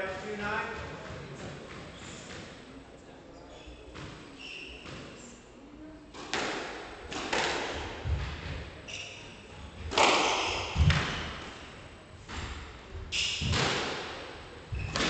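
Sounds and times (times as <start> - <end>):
squash racket strikes: 3.9 - 5.2, 6.1 - 15.0
ball hitting walls: 6.2 - 8.6, 9.8 - 11.3, 14.7 - 15.0.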